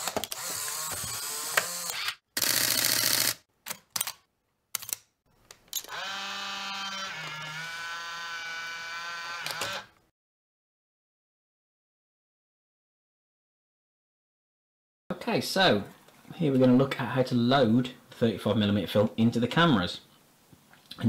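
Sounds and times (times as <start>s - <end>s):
camera motor whirring: 0.0s - 3.4s, 5.9s - 9.9s.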